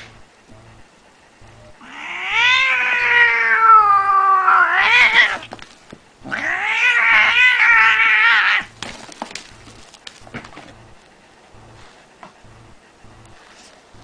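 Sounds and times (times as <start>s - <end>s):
cat yowling: 1.8s - 5.5s, 6.2s - 8.7s.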